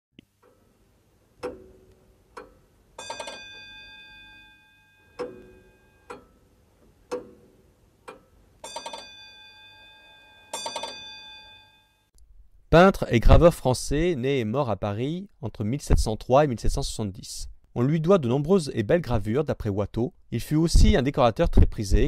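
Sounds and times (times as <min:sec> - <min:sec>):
clock ticking: 0:00.2 - 0:04.0, 0:05.2 - 0:09.1
quickly struck bell ringing: 0:03.0 - 0:06.1, 0:08.7 - 0:12.0.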